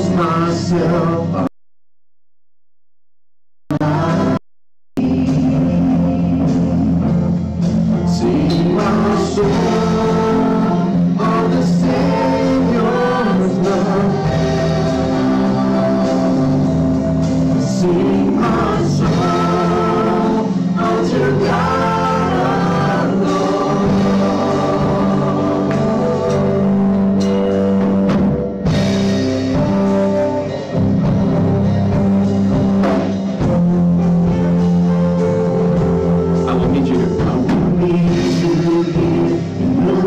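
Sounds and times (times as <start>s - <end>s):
group singing gospel song: 0.0s - 1.5s, 3.7s - 4.4s, 5.0s - 7.1s, 7.9s - 27.0s, 36.5s - 40.0s
keyboard accompaniment: 5.0s - 40.0s.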